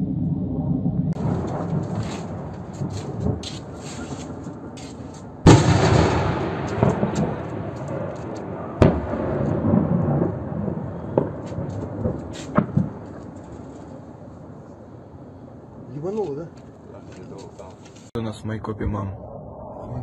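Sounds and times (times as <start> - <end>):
distant explosion boom: 0.0 - 4.8, 5.4 - 14.8.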